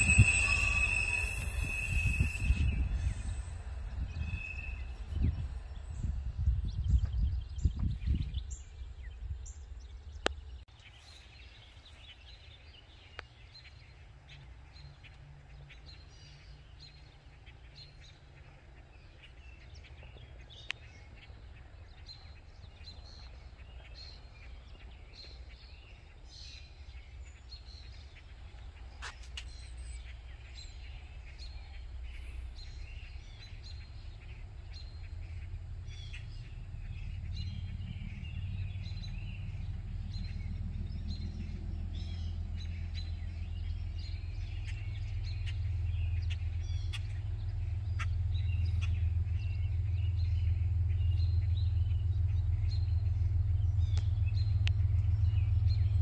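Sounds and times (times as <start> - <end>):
low rumble: 0.0 - 10.7, 30.0 - 56.0
songbirds chirping: 0.0 - 56.0.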